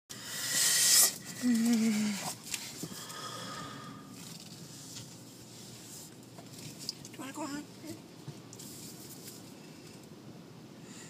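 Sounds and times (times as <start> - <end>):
hiss: 0.1 - 1.3.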